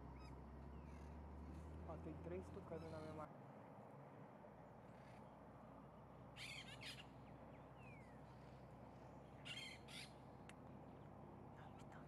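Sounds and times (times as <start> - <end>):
harsh crow-like bird calls: 6.4 - 7.1, 9.4 - 10.2.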